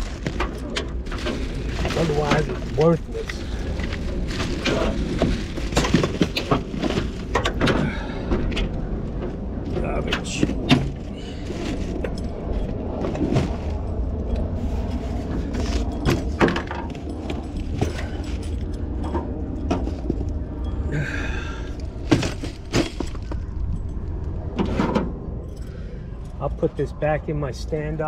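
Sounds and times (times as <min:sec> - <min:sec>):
steady low rumble: 0:00.0 - 0:28.0
parts clicking and clinking: 0:10.0 - 0:20.9, 0:21.7 - 0:26.4.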